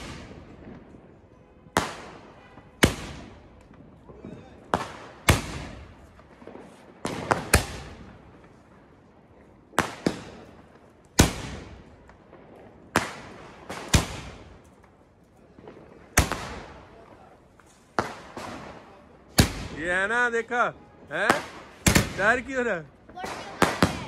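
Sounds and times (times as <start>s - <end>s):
firework shells banging: 20.9s - 24.0s.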